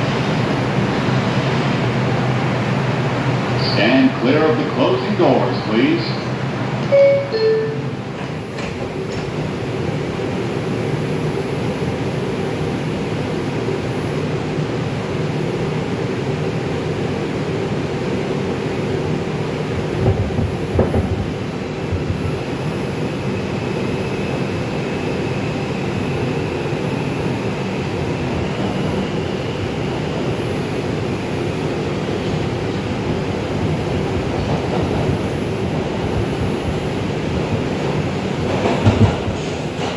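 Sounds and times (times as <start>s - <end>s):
subway wheels rumbling: 0.0s - 39.9s.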